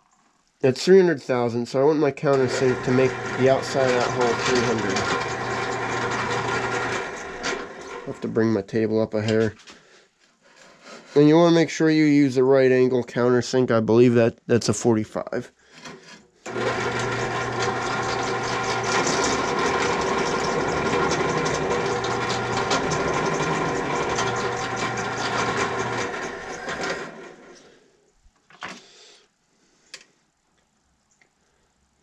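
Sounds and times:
drill press motor hum: 0:02.3 - 0:08.4, 0:16.4 - 0:27.7.

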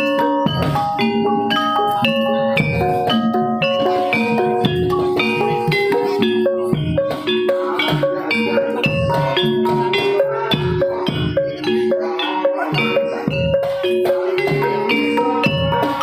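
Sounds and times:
drum strokes: 0:00.0 - 0:16.0
metallophones ringing: 0:00.0 - 0:16.0.

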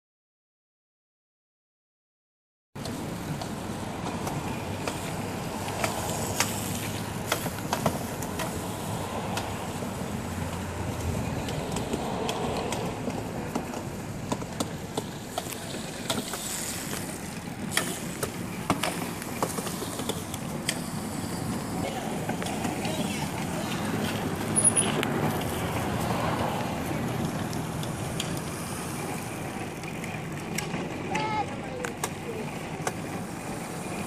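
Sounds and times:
electric dirt bikes whirring: 0:02.8 - 0:34.0
sharp clicks and knocks: 0:07.2 - 0:08.6, 0:10.4 - 0:17.1.

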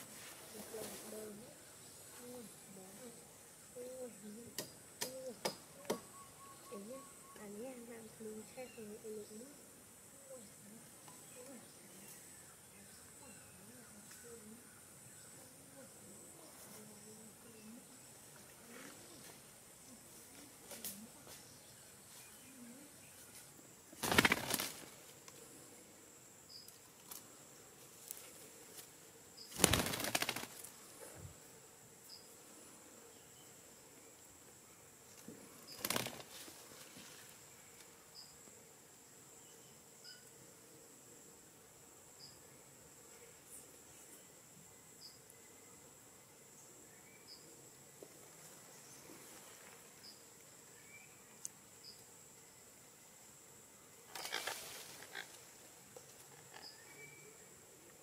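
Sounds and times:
crickets droning: 0:00.0 - 0:58.0
faint high chirps: 0:04.2 - 0:07.7
parrot wings flapping: 0:24.0 - 0:25.0, 0:29.5 - 0:30.7, 0:35.7 - 0:36.5.

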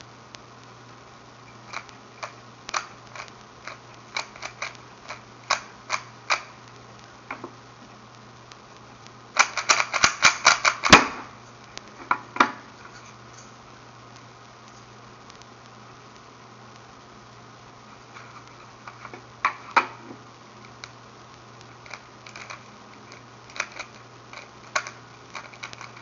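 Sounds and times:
faint steady hum: 0:00.0 - 0:26.0
rubik's cube clicking: 0:01.5 - 0:06.5, 0:09.4 - 0:11.0, 0:21.8 - 0:26.0.

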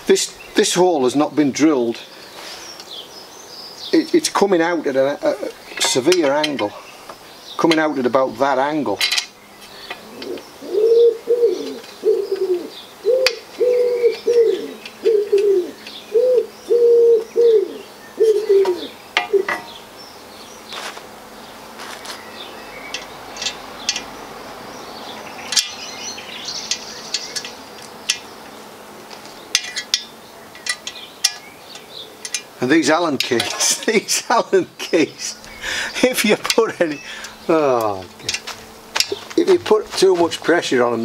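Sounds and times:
pigeon cooing: 0:05.1 - 0:05.8, 0:09.7 - 0:19.6
metal chair frame clinking: 0:05.4 - 0:06.7, 0:09.0 - 0:09.4, 0:29.5 - 0:32.5, 0:33.1 - 0:33.9.

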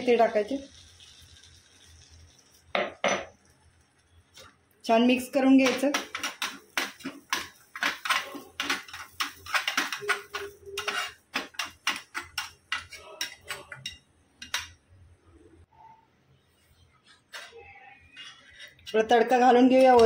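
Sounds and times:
metal spoon scraping steel pan: 0:05.6 - 0:14.7, 0:17.3 - 0:20.0.

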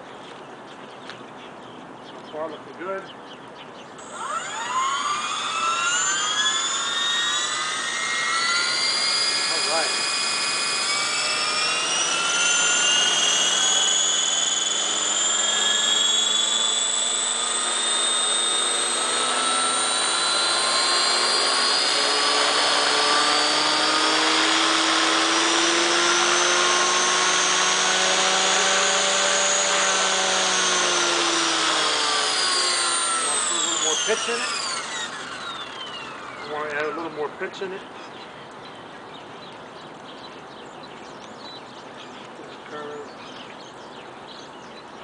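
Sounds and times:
model helicopter motor whining: 0:04.0 - 0:37.7.

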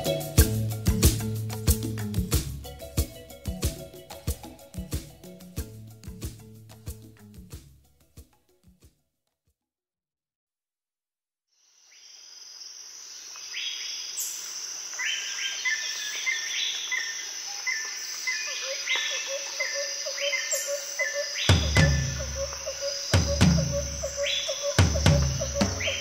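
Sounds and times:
insects trilling: 0:11.6 - 0:26.0
birds chirping: 0:15.0 - 0:26.0.

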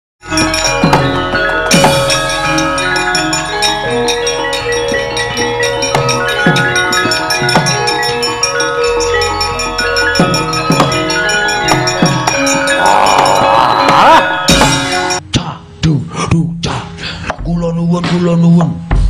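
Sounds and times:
ringing metallophones: 0:00.2 - 0:15.3.

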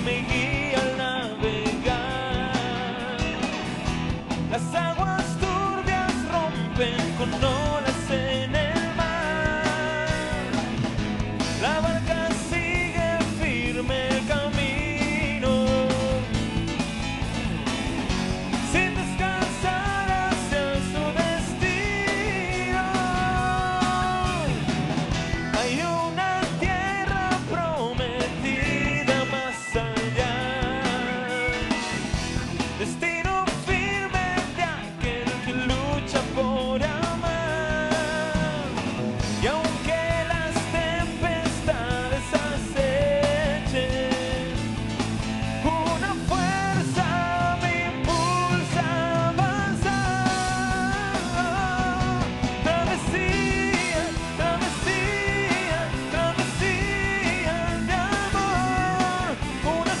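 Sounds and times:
live rock band playing: 0:00.0 - 1:00.0.

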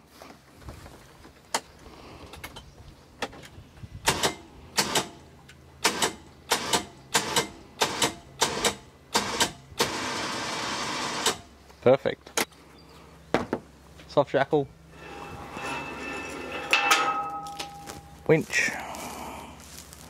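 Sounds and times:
electric winch running: 0:05.8 - 0:11.5, 0:14.9 - 0:16.8.

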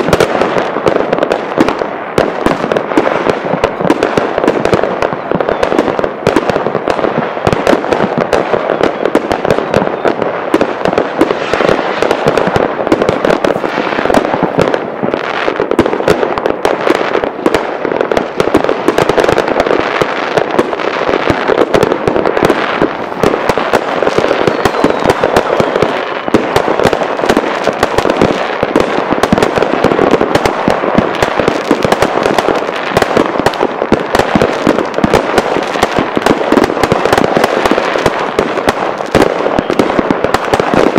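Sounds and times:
fireworks bangs and crackling: 0:00.0 - 0:40.9.

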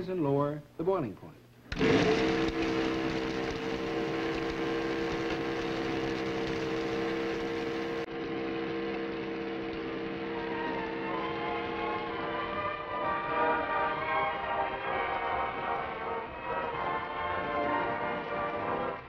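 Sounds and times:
electric motor humming: 0:01.6 - 0:14.0.

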